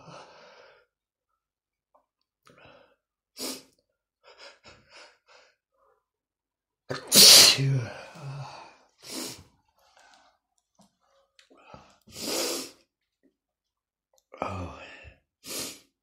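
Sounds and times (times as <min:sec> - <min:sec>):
man sneezing: 0:06.9 - 0:08.4.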